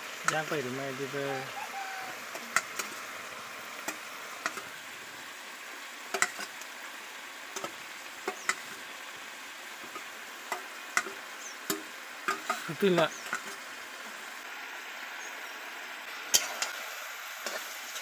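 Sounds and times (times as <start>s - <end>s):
chicken sizzling in a pot: 0.0s - 18.0s
steel spatula tapping and scraping: 2.3s - 3.0s, 3.8s - 4.7s, 6.1s - 6.6s, 7.6s - 8.7s, 9.8s - 13.6s.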